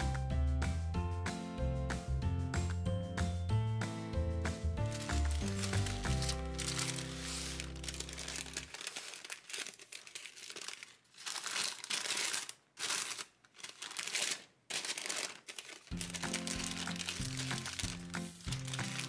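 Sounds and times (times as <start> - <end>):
baking paper crinkling: 4.8 - 19.0.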